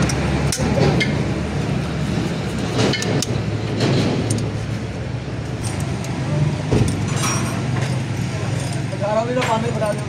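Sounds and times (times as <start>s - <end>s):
hand tools clinking on metal: 6.9s - 10.0s.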